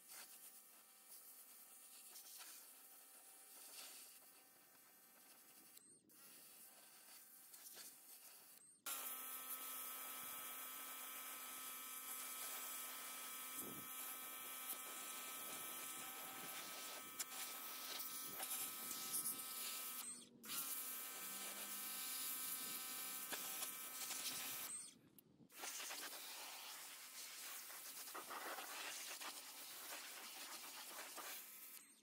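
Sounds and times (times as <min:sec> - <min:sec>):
pressure washer pump whine: 0:08.9 - 0:24.8.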